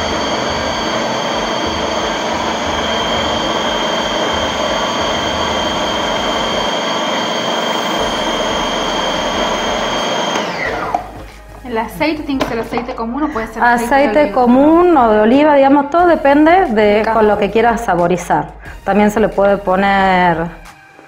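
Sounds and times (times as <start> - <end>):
food processor motor whining: 0.0 - 11.5.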